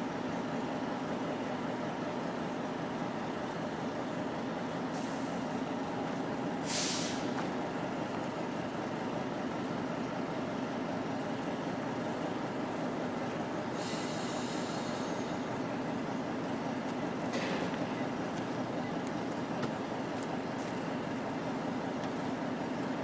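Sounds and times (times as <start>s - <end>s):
diesel locomotives running: 0.0s - 23.0s
air brake hiss: 4.9s - 5.5s, 6.6s - 7.3s, 13.7s - 15.5s.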